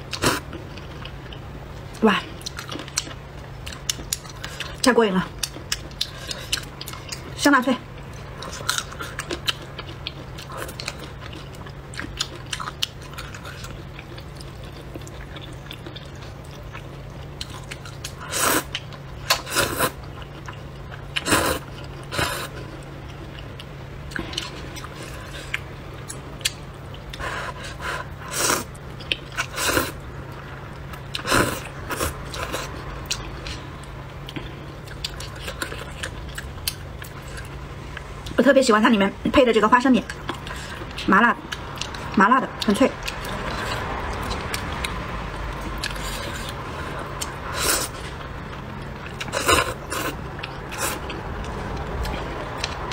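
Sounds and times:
person chewing: 0:00.0 - 0:38.1, 0:40.1 - 0:52.9
steady low hum: 0:00.0 - 0:52.9
person slurping noodles: 0:18.2 - 0:18.7, 0:19.3 - 0:20.0, 0:21.2 - 0:22.5, 0:27.2 - 0:28.7, 0:46.0 - 0:48.0.

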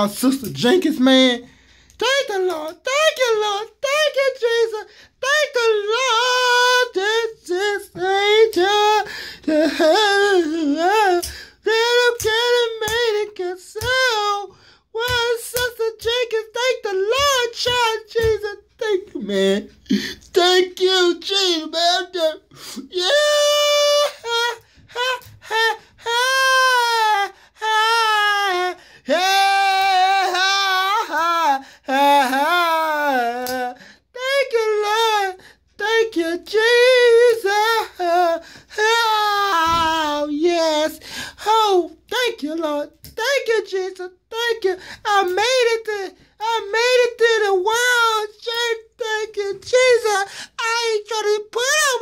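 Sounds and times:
breaths between phrases: 0:01.4 - 0:02.0, 0:09.1 - 0:09.4, 0:14.5 - 0:14.9, 0:19.7 - 0:20.3, 0:38.4 - 0:38.8, 0:41.0 - 0:41.4, 0:44.8 - 0:45.1, 0:50.3 - 0:50.6
man singing in falsetto: 0:02.0 - 0:52.0
man wailing in falsetto: 0:22.8 - 0:33.7.

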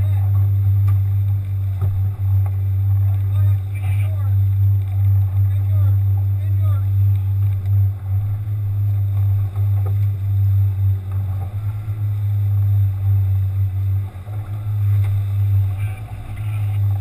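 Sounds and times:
outboard motor droning: 0:00.0 - 0:17.0.

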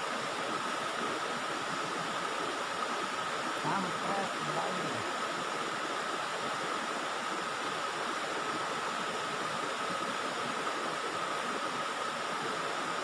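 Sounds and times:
river water rushing: 0:00.0 - 0:13.0.

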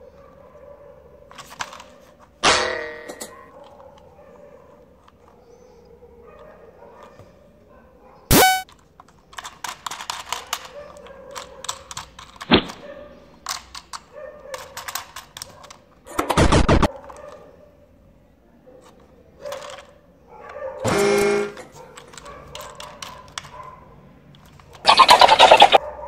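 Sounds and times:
plastic toy clicking and rattling: 0:01.3 - 0:02.4, 0:08.6 - 0:16.2, 0:18.8 - 0:20.6, 0:21.6 - 0:23.7, 0:24.3 - 0:25.8
toy electronic sound bursts: 0:08.3 - 0:08.6, 0:24.9 - 0:25.8.

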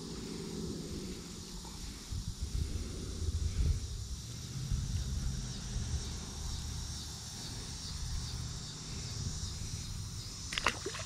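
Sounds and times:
low rumble on microphone: 0:00.0 - 0:06.6
insects chirring: 0:00.0 - 0:11.0.

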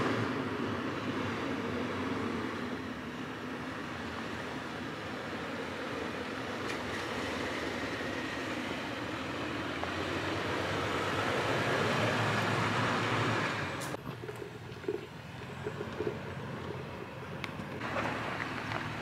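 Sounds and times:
car engine running: 0:01.7 - 0:19.0
tyres rolling over gravel: 0:09.4 - 0:19.0.

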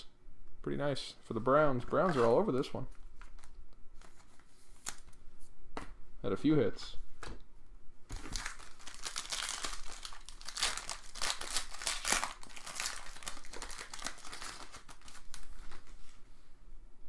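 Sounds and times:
card pack wrapper crinkling: 0:08.1 - 0:16.0.

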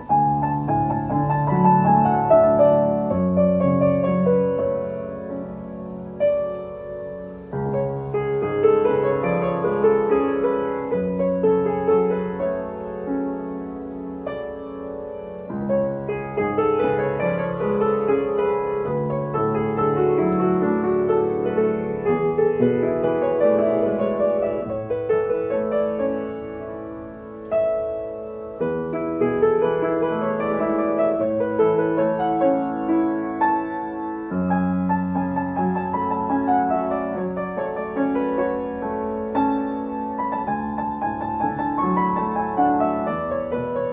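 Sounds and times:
upright piano playing: 0:00.0 - 0:43.9.

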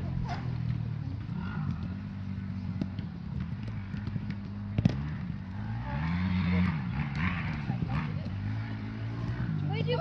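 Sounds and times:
football being kicked: 0:02.6 - 0:05.2.

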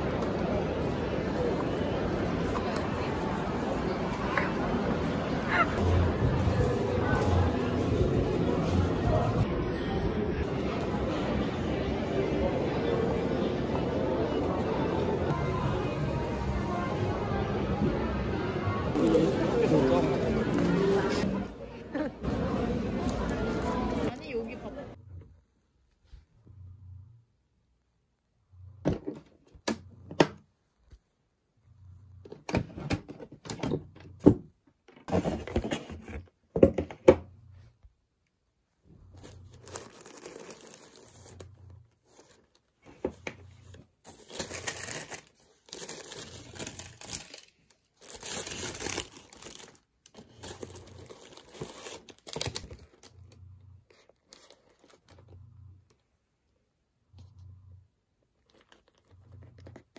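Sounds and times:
tissue paper and cloth rustling: 0:39.1 - 0:42.9, 0:44.0 - 0:53.0.

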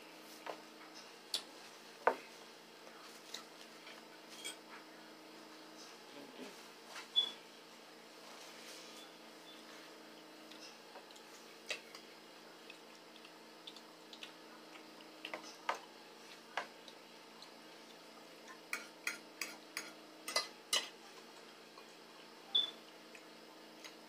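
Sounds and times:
faint steady hum: 0:00.0 - 0:24.0
forks clicking on glass and plates: 0:18.7 - 0:20.9.

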